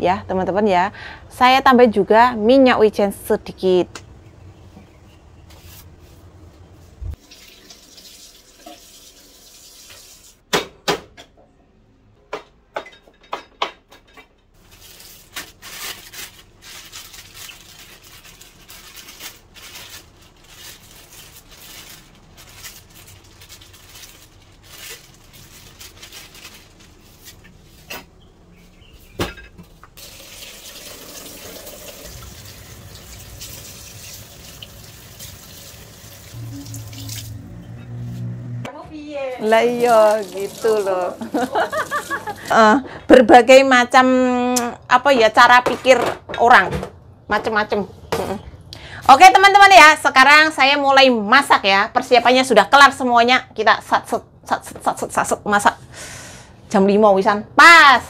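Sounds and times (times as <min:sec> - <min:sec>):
plastic bag rustling: 0:14.6 - 0:27.9.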